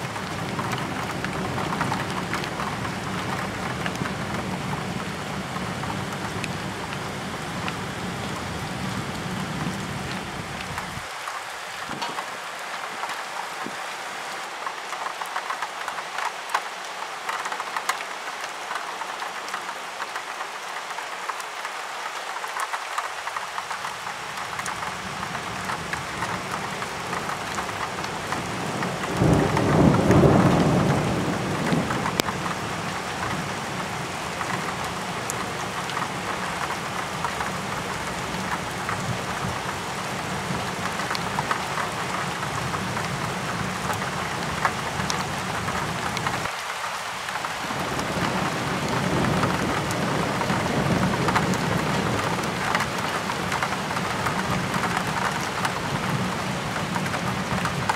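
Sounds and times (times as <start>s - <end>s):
steady rain falling: 0.0s - 57.9s
thunder rumbling: 27.3s - 33.5s, 47.6s - 56.2s.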